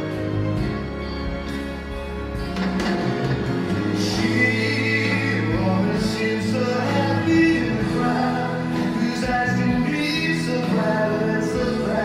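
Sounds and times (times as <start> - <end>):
long held instrumental notes: 0.0 - 12.0
person singing: 3.9 - 12.0.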